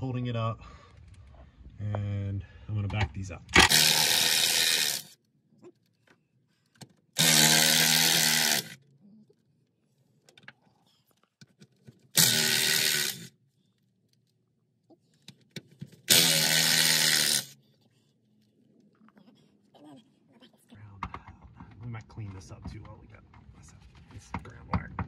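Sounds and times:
impact wrench bursts: 0:03.6 - 0:05.2, 0:07.2 - 0:08.8, 0:12.1 - 0:13.3, 0:16.0 - 0:17.6.

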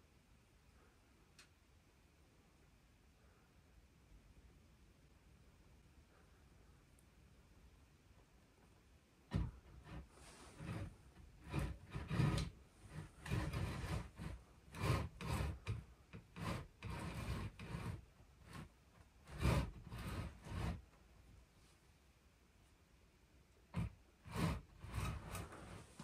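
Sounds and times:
handheld camera rubbing and scuffing: 0:24.3 - 0:26.0.

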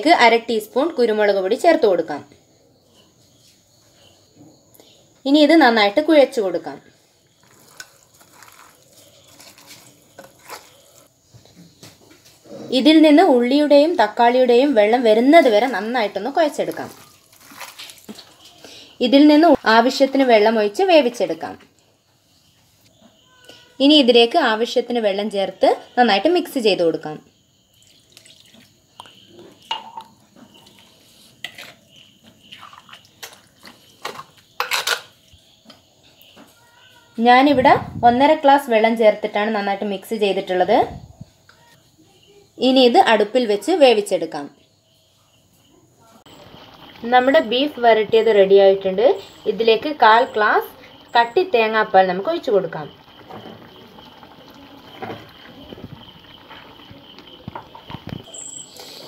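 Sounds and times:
curry simmering with pops: 0:07.2 - 0:11.1, 0:15.4 - 0:18.6, 0:27.7 - 0:36.6, 0:46.2 - 0:58.6
spoon scraping clay: 0:07.4 - 0:11.1, 0:30.6 - 0:32.1
spoon stirring in clay pot: 0:07.4 - 0:11.1, 0:29.1 - 0:35.0
liquid pouring: 0:27.8 - 0:28.8, 0:46.3 - 0:47.4, 0:52.9 - 0:57.7.

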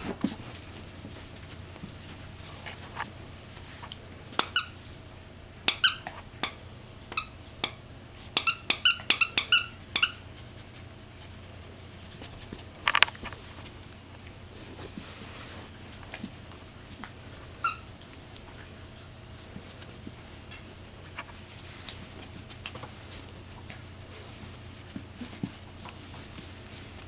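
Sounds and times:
squeaker toy squeaking: 0:08.4 - 0:10.2.

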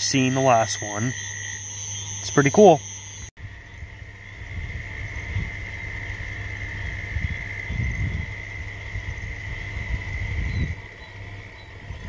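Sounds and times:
insects or frogs calling: 0:00.0 - 0:12.0
low rumbling: 0:03.4 - 0:12.0.

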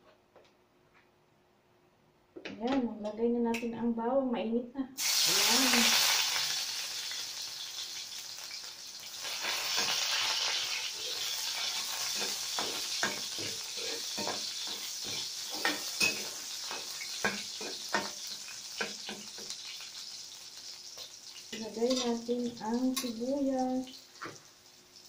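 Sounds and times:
garlic sizzling in hot oil: 0:05.0 - 0:25.0
metal spatula scraping wok: 0:09.2 - 0:19.5.

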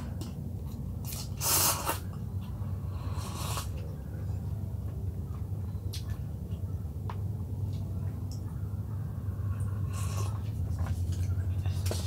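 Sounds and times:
airy mouth sounds while eating: 0:01.0 - 0:03.8.

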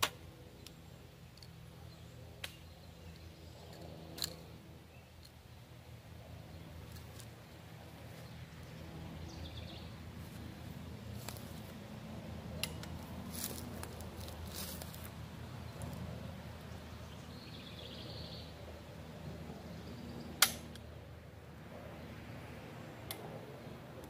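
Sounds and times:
gun handling clicks: 0:02.4 - 0:04.5, 0:20.4 - 0:20.9.

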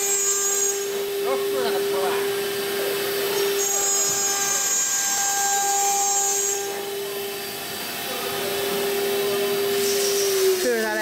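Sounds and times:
high-pitched cutting noise: 0:00.0 - 0:11.0
router spindles whining: 0:00.0 - 0:11.0.

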